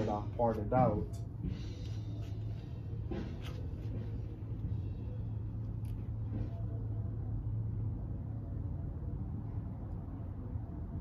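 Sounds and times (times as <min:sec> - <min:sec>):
ceiling fan motor hum: 0:00.0 - 0:11.0
fan bearing noise: 0:00.0 - 0:11.0.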